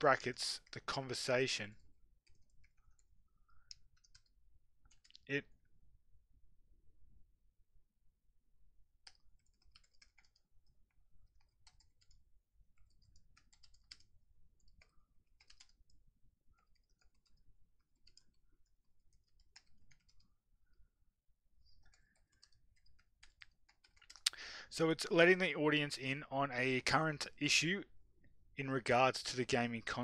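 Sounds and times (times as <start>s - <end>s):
typing on keyboard: 3.7s - 5.3s, 9.0s - 16.0s, 16.6s - 20.3s, 21.7s - 24.4s.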